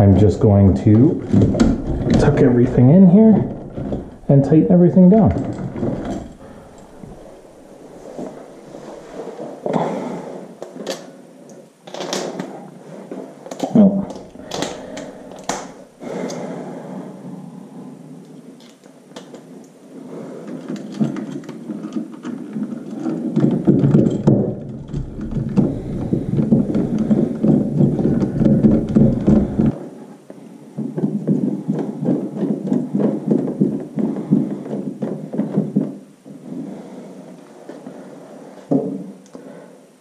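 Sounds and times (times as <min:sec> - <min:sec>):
wires scraping in wall box: 0:24.9 - 0:29.8.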